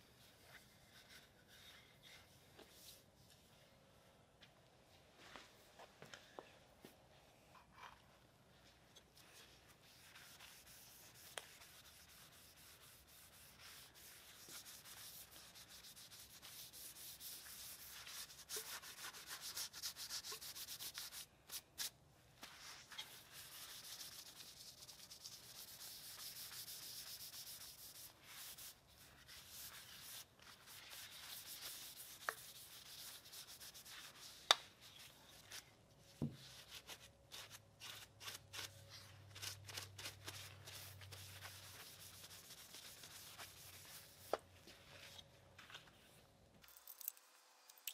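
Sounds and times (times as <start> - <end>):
cloth rag wiping wood: 9.2 - 35.5, 40.3 - 45.2.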